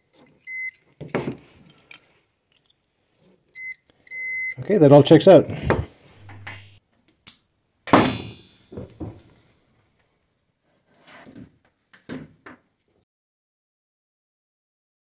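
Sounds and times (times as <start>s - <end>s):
solid thunk with ringing tail: 8.0s - 8.5s.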